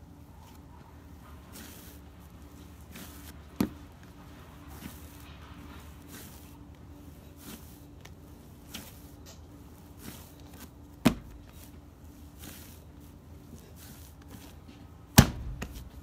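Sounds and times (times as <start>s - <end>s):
hands kneading dough: 0.0s - 16.0s
sharp thud: 15.2s - 15.8s.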